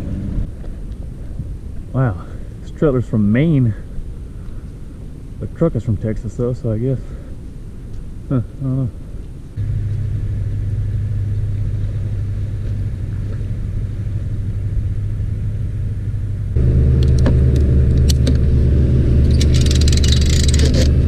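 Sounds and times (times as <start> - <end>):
vehicle engine running at low revs: 8.3 - 21.0
outboard motor idling: 9.6 - 21.0
clicks: 17.0 - 18.5.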